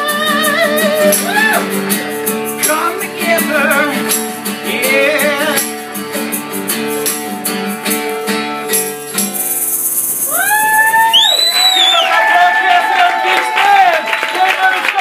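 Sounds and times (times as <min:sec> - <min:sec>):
person singing: 0:00.0 - 0:05.9
acoustic guitar strumming: 0:00.0 - 0:11.3
percussive beat: 0:00.3 - 0:11.1
crowd whooping and cheering: 0:01.2 - 0:01.8, 0:10.1 - 0:15.0.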